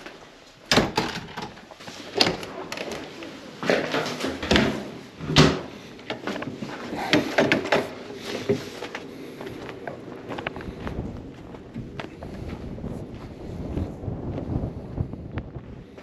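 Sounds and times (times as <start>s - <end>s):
doors swinging shut with clunks: 0.7s - 3.0s, 3.7s - 6.5s
footsteps: 1.6s - 16.0s.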